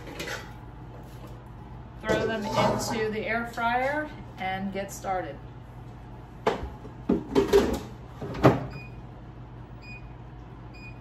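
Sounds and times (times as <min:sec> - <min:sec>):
air fryer basket scraping: 0:00.0 - 0:01.4, 0:02.0 - 0:04.1.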